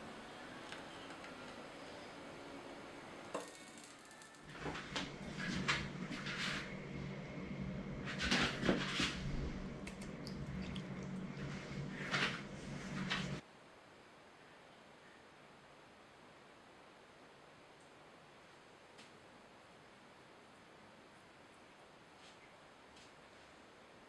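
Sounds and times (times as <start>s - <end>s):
steady low hum: 4.3s - 13.4s.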